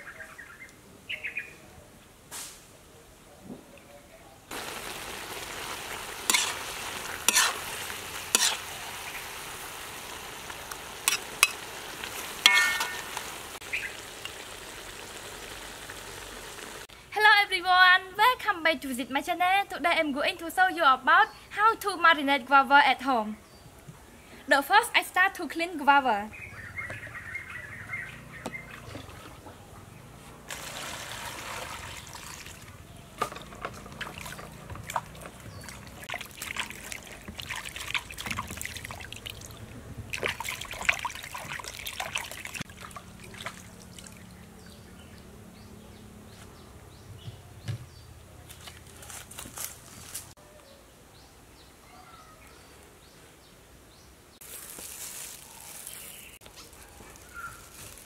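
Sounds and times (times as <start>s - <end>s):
water drips: 4.5s - 16.4s, 33.7s - 45.3s
water splashing in a plastic basin: 28.4s - 29.8s, 30.4s - 44.7s.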